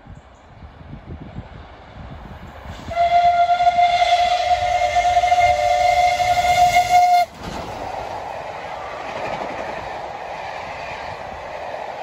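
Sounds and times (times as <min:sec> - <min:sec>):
train coaches rushing past: 0:02.6 - 0:12.0
steam whistle: 0:02.8 - 0:07.3.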